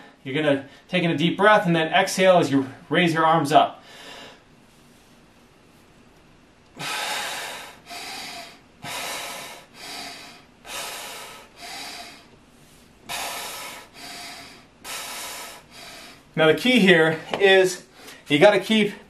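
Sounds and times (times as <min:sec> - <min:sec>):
man breathing heavily: 0:03.8 - 0:04.8, 0:06.7 - 0:16.4, 0:17.1 - 0:18.3.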